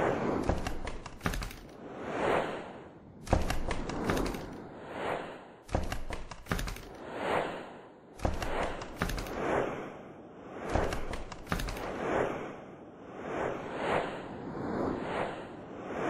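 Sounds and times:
rapid clicks and thuds: 0.4s - 1.8s, 3.2s - 4.6s, 5.7s - 7.0s, 8.2s - 9.4s, 10.7s - 12.0s.

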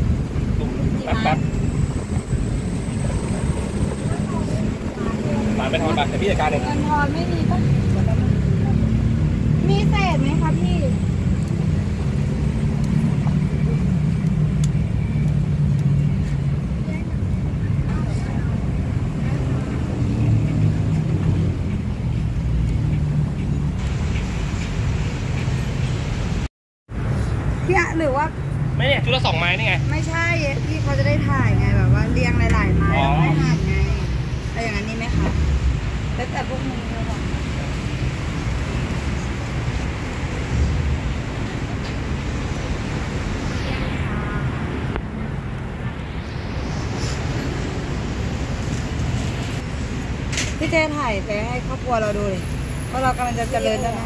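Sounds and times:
passing traffic: 0.0s - 54.0s
rushing noise: 0.0s - 54.0s
wind on microphone: 40.7s - 50.1s.

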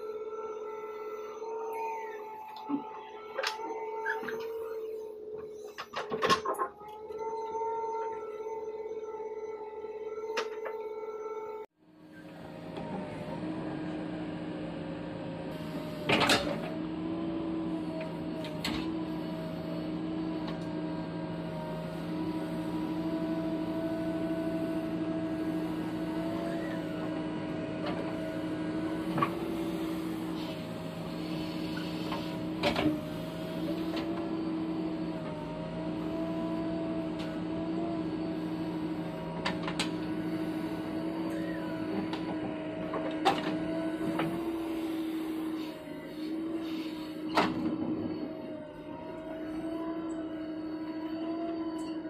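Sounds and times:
hydraulic hum: 0.0s - 52.0s
diesel engine running: 11.8s - 52.0s.

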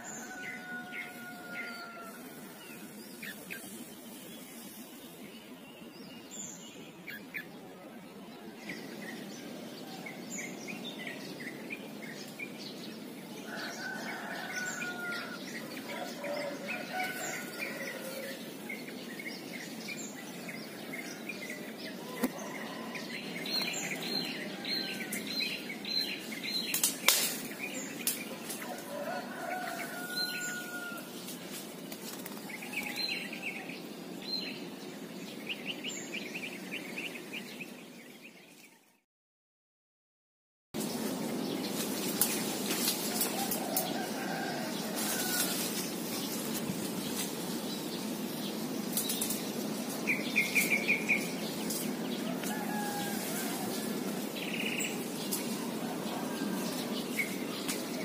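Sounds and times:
leaves rustling: 0.0s - 6.5s, 8.4s - 34.0s, 40.8s - 58.0s
birds chirping and calling: 0.0s - 38.6s, 40.8s - 58.0s.

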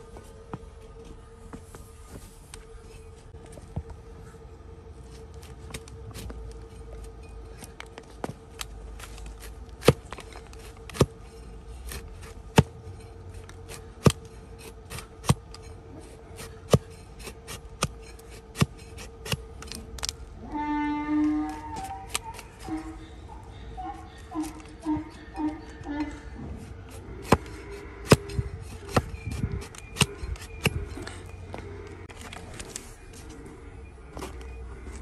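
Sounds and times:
faint steady hum: 0.0s - 35.0s
knife shaving hoof: 8.9s - 19.7s, 21.5s - 31.3s.

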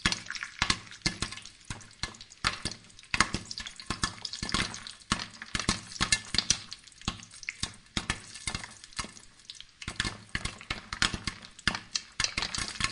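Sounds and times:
charcoal crackling: 0.0s - 12.9s.

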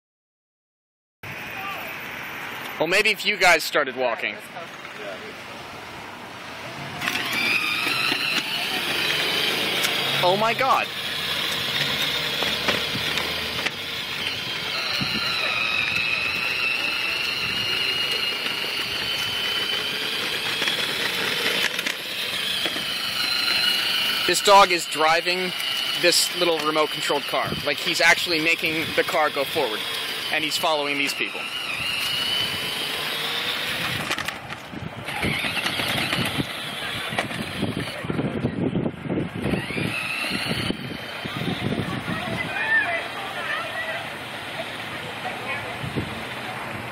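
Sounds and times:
wheels rolling on pavement: 1.3s - 46.9s
electric motor whine: 7.0s - 34.4s, 35.0s - 38.0s, 39.3s - 42.6s.

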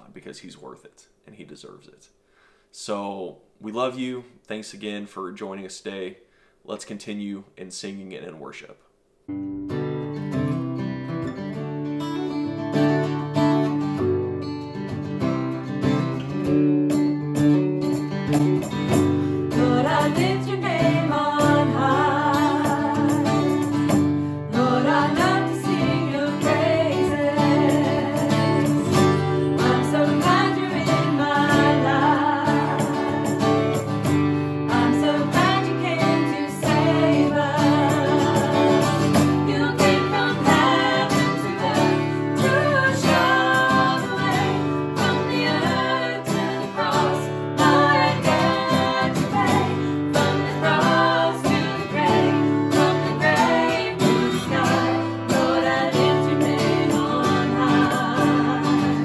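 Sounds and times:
acoustic guitar strumming: 9.3s - 59.0s
women singing: 19.2s - 33.9s, 34.6s - 59.0s.

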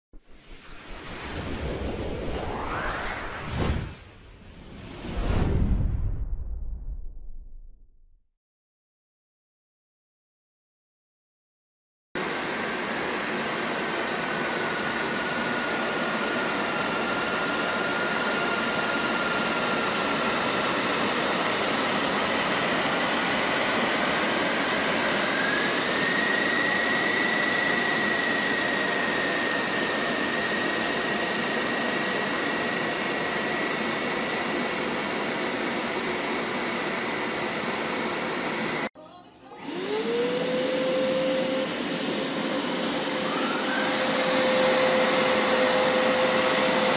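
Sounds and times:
high motor whine: 0.2s - 4.2s, 12.2s - 38.9s, 39.6s - 46.9s
carpet washer motor whooshing: 12.2s - 38.9s, 39.6s - 46.9s.

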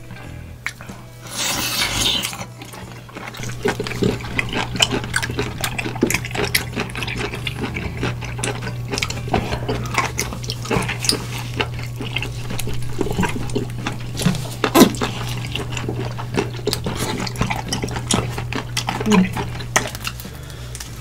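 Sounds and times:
liquid splashing: 3.2s - 20.0s.

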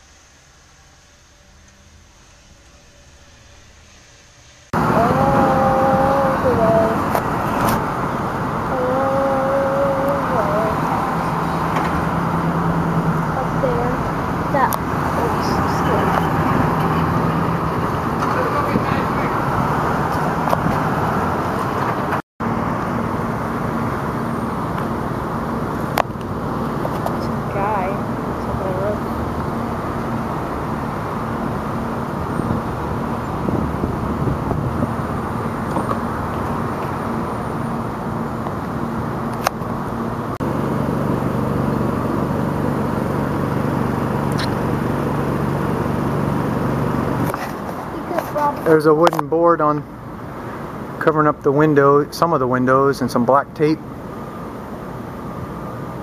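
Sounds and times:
faint steady hum: 0.0s - 7.2s, 8.2s - 16.0s
low hum: 0.0s - 56.0s
machinery drone: 0.0s - 56.0s
outdoor noise: 0.0s - 56.0s
street traffic noise: 0.0s - 56.0s
single sharp click: 44.3s - 44.6s.

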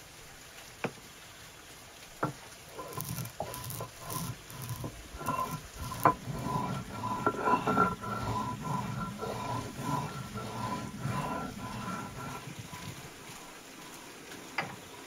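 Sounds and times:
stone crushing peppercorns and salt: 2.8s - 13.1s.

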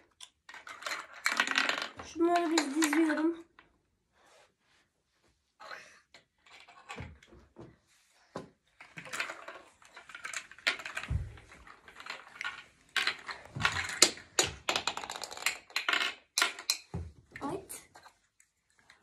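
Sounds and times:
plastic blocks clicking: 0.0s - 3.4s, 8.8s - 16.9s.

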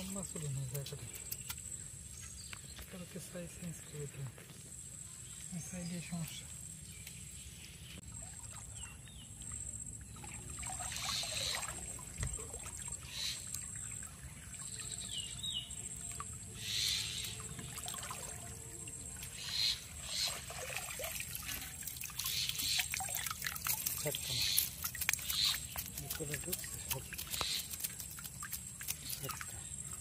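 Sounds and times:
water sloshing and splashing: 8.0s - 30.0s
water trickling and pouring: 8.0s - 30.0s.

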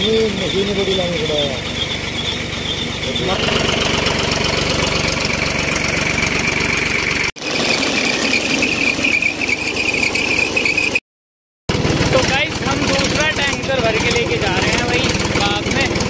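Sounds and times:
high-pitched whine: 0.0s - 11.0s
tractor engine running: 0.0s - 11.0s, 11.7s - 16.0s.

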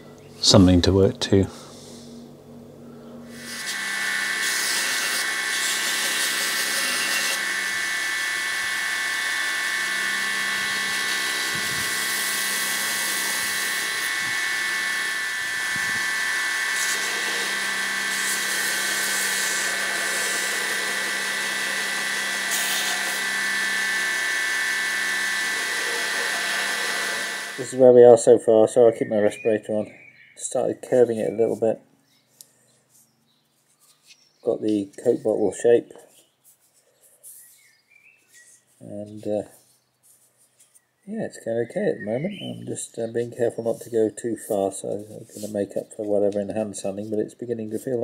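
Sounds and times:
belt grinder whining: 3.3s - 27.9s
belt sanding hiss: 10.7s - 24.5s.

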